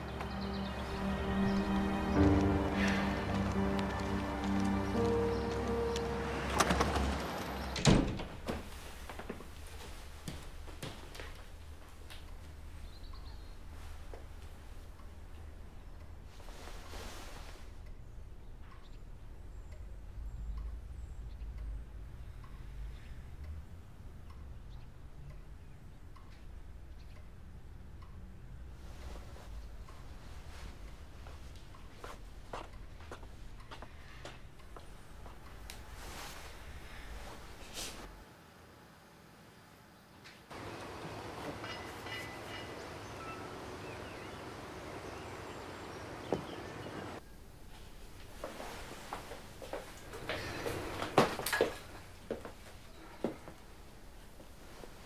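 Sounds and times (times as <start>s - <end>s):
low rumble of room tone: 0.0s - 55.0s
steady outdoor noise: 0.0s - 55.0s
clock ticking: 17.8s - 28.8s.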